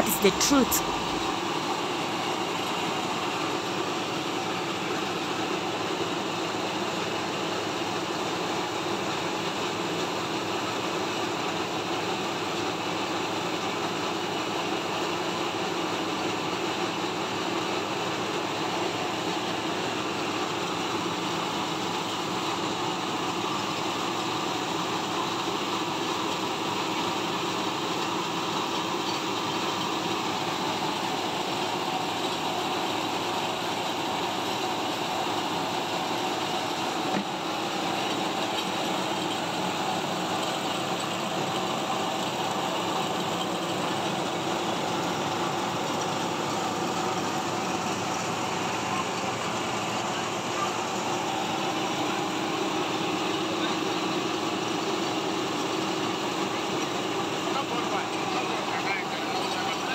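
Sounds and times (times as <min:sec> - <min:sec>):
rice mill running: 0:00.0 - 0:59.9.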